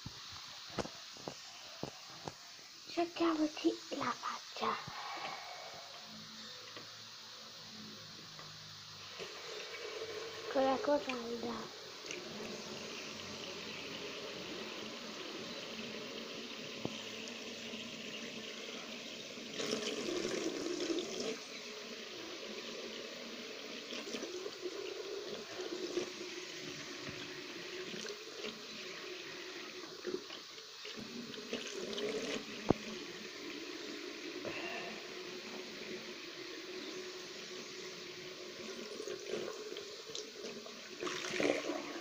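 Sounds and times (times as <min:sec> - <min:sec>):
tap running into basin: 0:12.0 - 0:34.6.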